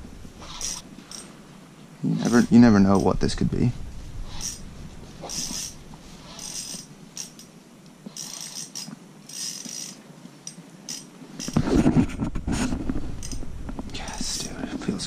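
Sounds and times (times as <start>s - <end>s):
handling noise: 0.0s - 15.0s
fishing reel ticking and whirring: 0.4s - 1.3s, 4.2s - 4.6s, 5.2s - 7.5s, 8.1s - 11.6s, 13.2s - 13.4s.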